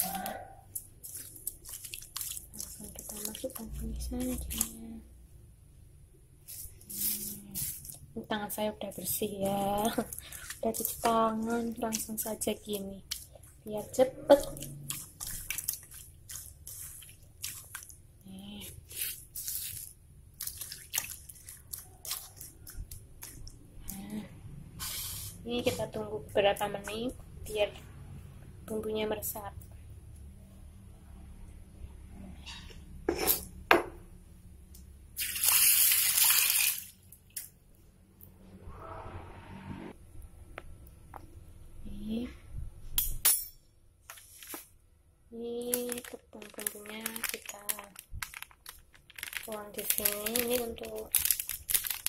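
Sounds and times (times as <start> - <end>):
hand squishing wet shrimp: 0.0 - 4.8, 9.0 - 24.1, 45.7 - 52.0.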